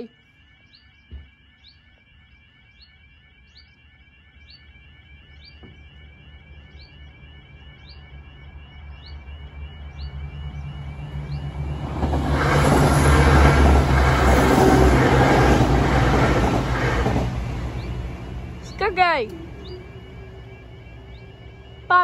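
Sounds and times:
level crossing warbling alarm: 0.0s - 22.0s
diesel train rumble: 9.2s - 22.0s.

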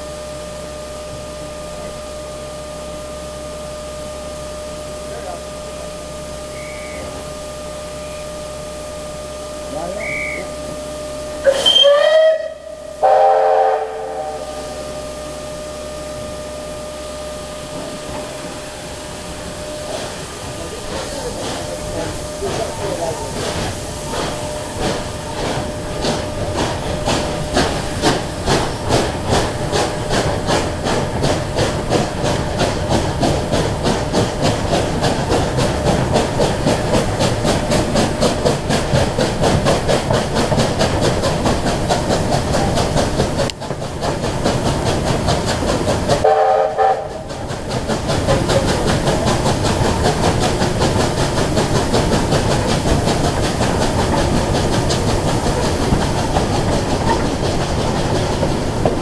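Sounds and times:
steam locomotive chuffing: 0.0s - 59.0s
train whistle blast: 6.5s - 7.2s, 10.0s - 10.6s, 11.4s - 14.8s, 46.2s - 47.2s
hiss of steam: 9.5s - 59.0s.

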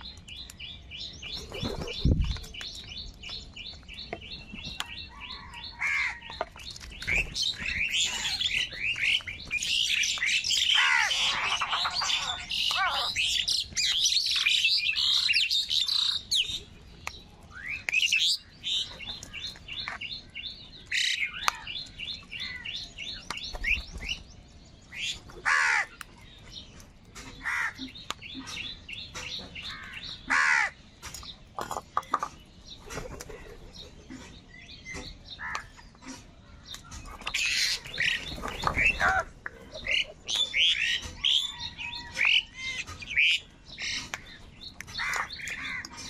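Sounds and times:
crows cawing: 5.4s - 6.3s, 10.6s - 13.4s, 25.4s - 26.0s, 27.4s - 27.8s, 29.6s - 30.8s, 45.0s - 46.0s.

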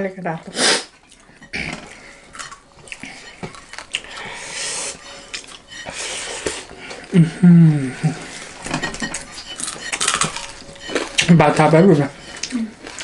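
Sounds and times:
plates and cutlery clinking: 1.0s - 7.1s, 8.0s - 13.0s.

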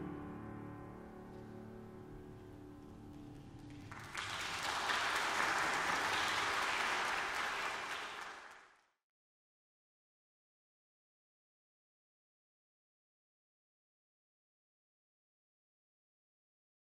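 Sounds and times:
congregation applauding: 3.4s - 8.9s.

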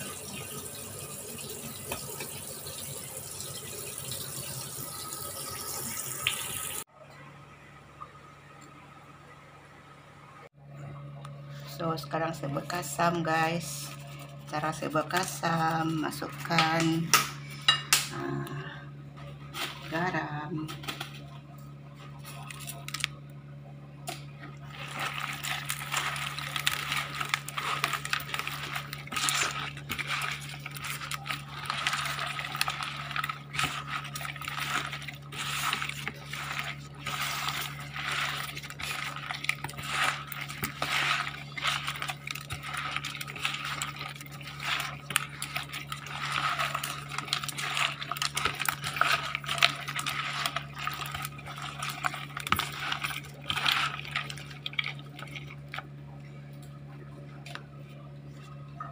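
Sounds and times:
steady low hum: 6.9s - 58.9s
wet squelching of fish and salt: 11.5s - 17.6s, 24.1s - 56.2s.

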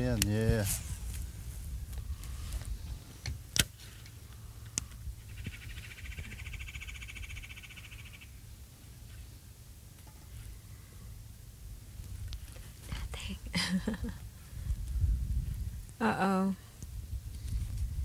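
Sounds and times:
low steady rumble: 0.0s - 18.0s
frog trilling: 5.3s - 8.4s.

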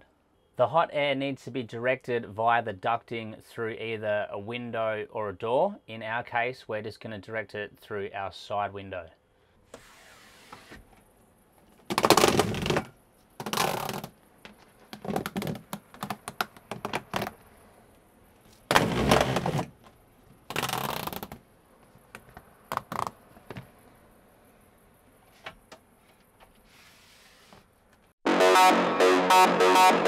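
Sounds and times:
corrugated duct crinkling and rattling: 11.6s - 17.5s, 18.4s - 21.4s.

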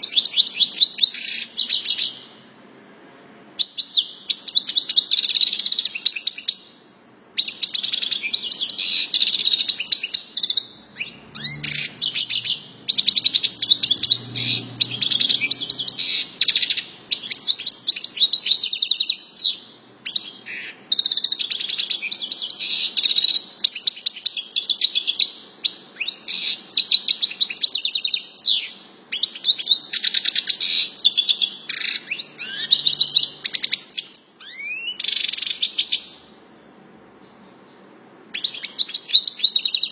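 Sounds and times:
goldfinch twittering and trilling: 7.4s - 23.2s.

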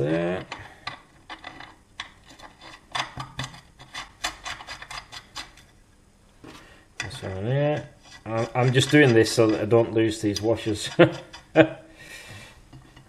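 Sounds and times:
small metal parts clicking and scraping: 0.4s - 5.7s, 8.0s - 11.5s.

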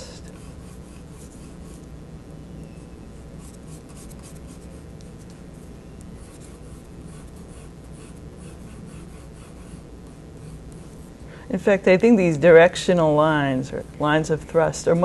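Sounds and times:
steady low hum: 0.0s - 15.0s
pencil scratching on paper: 0.3s - 1.9s, 3.4s - 4.8s, 6.2s - 11.1s.

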